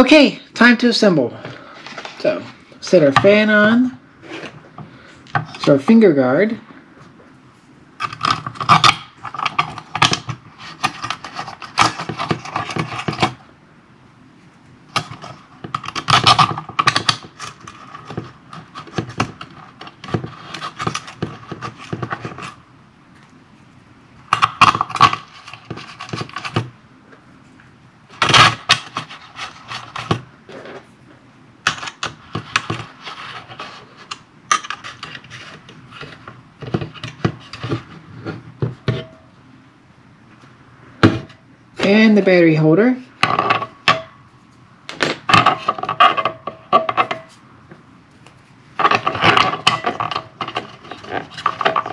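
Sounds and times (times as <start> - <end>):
metallic clicks rattles and scrapes: 8.0 - 13.4, 31.6 - 38.0, 48.8 - 51.9.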